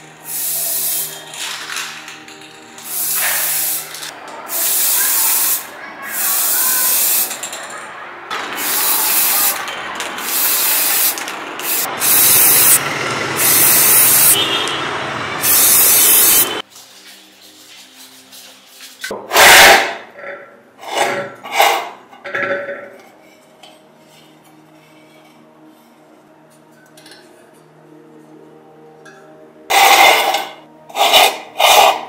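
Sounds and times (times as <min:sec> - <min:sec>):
spray can hissing: 0:00.2 - 0:07.5, 0:08.3 - 0:14.6, 0:15.4 - 0:16.6.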